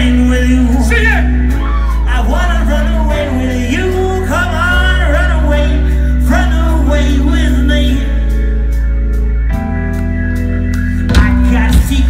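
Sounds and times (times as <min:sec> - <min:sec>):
man singing: 0:00.0 - 0:08.6, 0:11.0 - 0:12.0.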